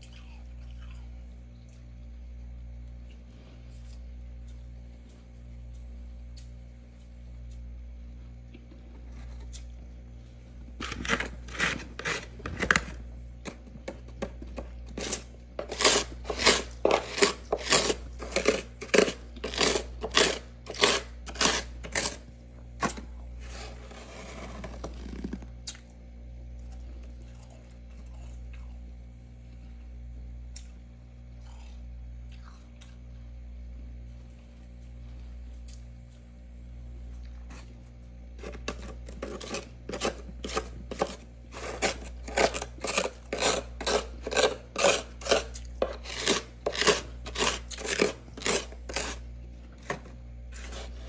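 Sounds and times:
steady low hum: 0.0s - 51.0s
fingers scraping frost: 23.4s - 25.4s.

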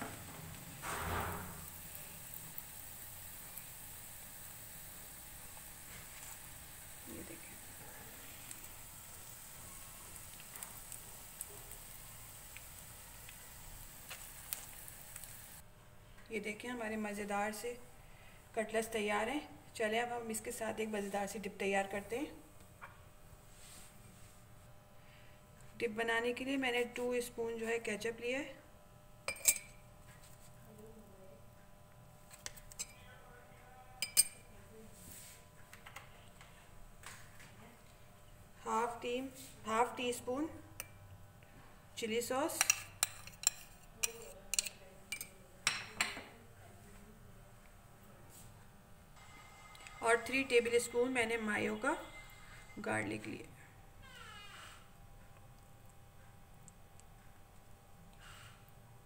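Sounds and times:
oil sizzling in a frying pan: 0.0s - 15.6s
oil crackling and popping: 0.1s - 15.6s
metal spoon clinking glass bowl: 29.3s - 29.8s, 34.0s - 34.4s, 42.6s - 46.0s.

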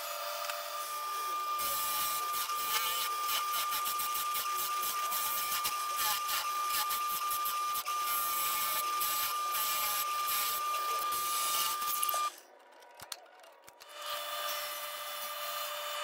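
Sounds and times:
drill bit boring into wood: 0.0s - 12.3s.

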